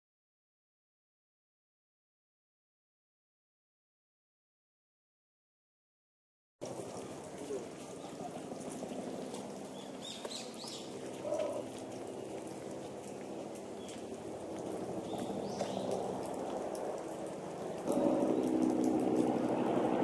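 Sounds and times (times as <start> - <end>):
outdoor background noise: 6.6 - 20.0
bird chirps: 9.7 - 11.7, 15.0 - 16.0.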